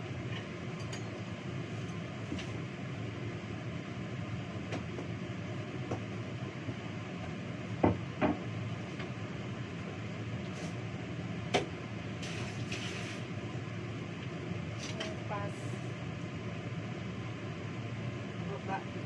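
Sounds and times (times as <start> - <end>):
steady low hum: 0.0 - 19.0
dishes knocking and clattering: 7.8 - 8.5.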